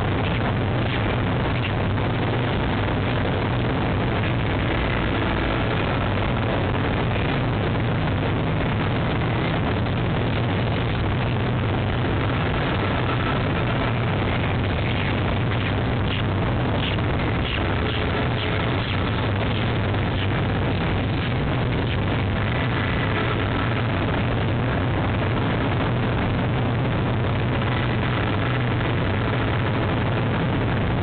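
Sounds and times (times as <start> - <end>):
city traffic rushing: 0.0 - 31.0
low hum: 0.0 - 31.0
wind: 0.0 - 31.0.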